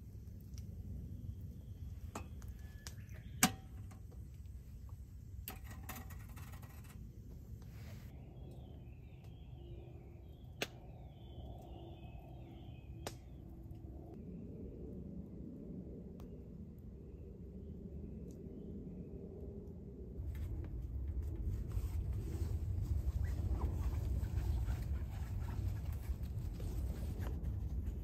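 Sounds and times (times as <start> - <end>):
wood fire rumbling: 0.0 - 13.9.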